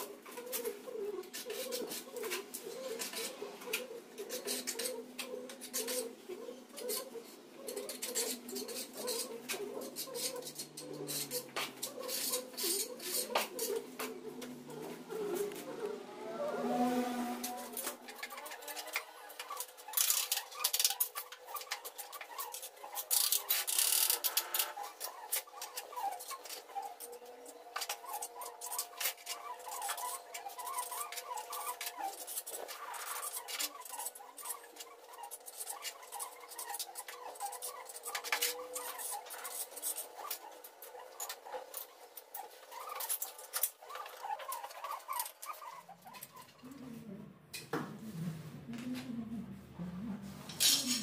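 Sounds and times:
faint squeaky chirps: 0:00.0 - 0:47.2
ceramic tiles clattering: 0:50.5 - 0:51.0.

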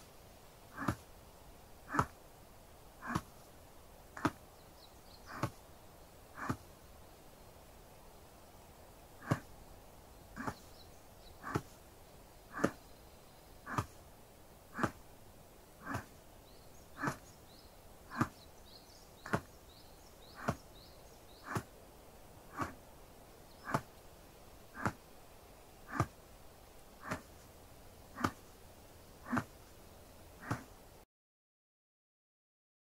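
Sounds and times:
soft taps on shoulders: 0:04.2 - 0:04.4, 0:27.0 - 0:27.4, 0:28.2 - 0:28.5, 0:30.4 - 0:30.7.

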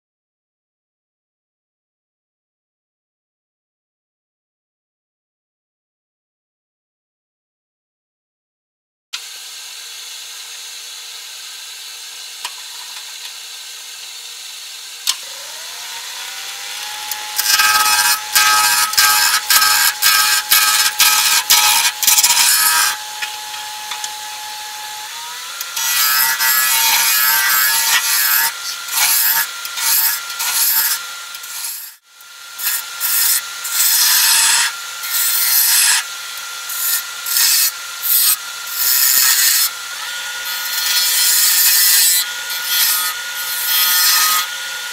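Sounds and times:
lathe motor whine: 0:13.2 - 0:44.9
gouge shaving spinning wood: 0:13.4 - 0:31.7.

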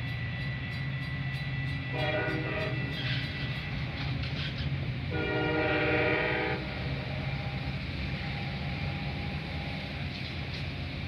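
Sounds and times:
train rumbling: 0:00.0 - 0:11.0
train horn blast: 0:01.9 - 0:03.1, 0:05.1 - 0:06.9.

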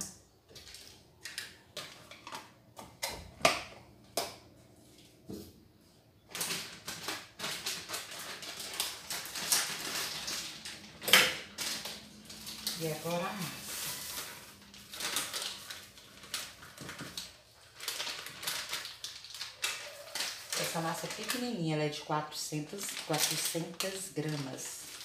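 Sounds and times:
packet crinkling and tearing: 0:06.3 - 0:25.0.

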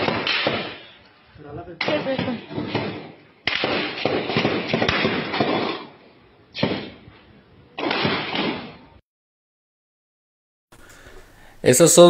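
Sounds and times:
gunshots: 0:00.0 - 0:01.0, 0:01.7 - 0:07.1, 0:07.8 - 0:09.0.

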